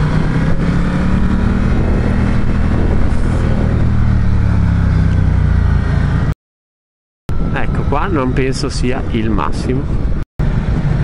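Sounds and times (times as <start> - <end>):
motorcycle engine running: 0.0 - 6.3
wind and road noise: 0.0 - 6.4, 7.3 - 11.0.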